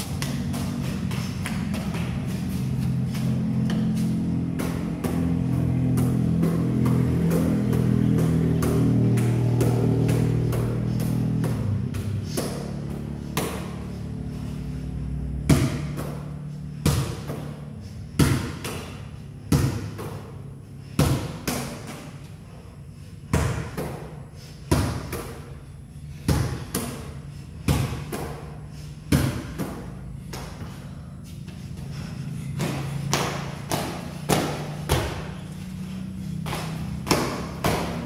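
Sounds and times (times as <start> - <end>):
ball bouncing on concrete: 0.0 - 13.9, 15.4 - 22.3, 23.3 - 38.0.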